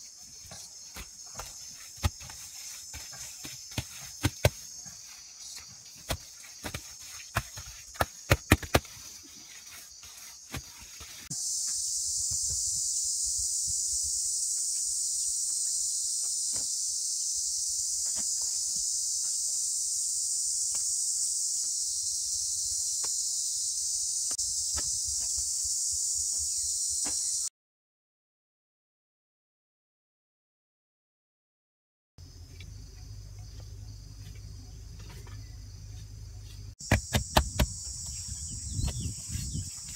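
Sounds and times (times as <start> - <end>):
hands digging in soil: 0.0 - 11.3
insects droning: 0.0 - 27.5, 32.2 - 39.9.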